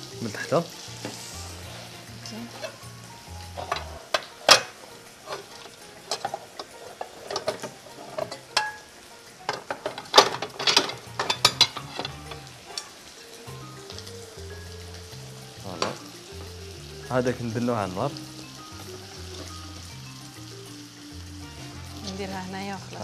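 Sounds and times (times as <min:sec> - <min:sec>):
low sizzle: 0:00.0 - 0:23.0
spatula scraping frying pan: 0:00.8 - 0:13.0
utensils clicking and knocking: 0:03.5 - 0:12.9.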